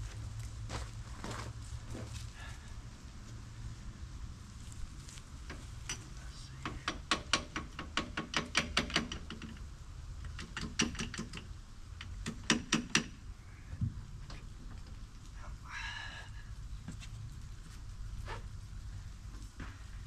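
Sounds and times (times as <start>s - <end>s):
metallic clicks and clacks: 6.6s - 9.6s, 10.2s - 13.1s.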